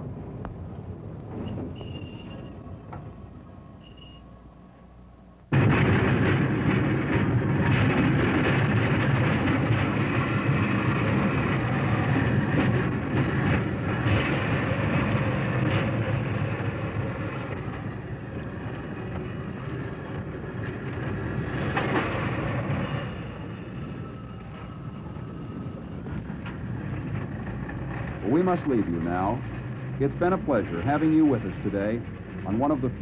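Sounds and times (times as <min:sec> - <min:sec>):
rail car rumbling on track: 0:00.0 - 0:33.0
sharp clacks of wheels: 0:06.1 - 0:32.4.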